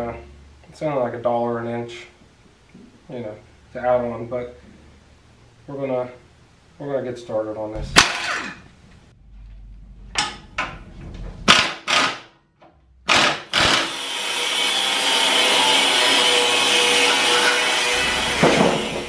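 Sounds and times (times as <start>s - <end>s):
grinder cutting steel: 13.1s - 19.0s.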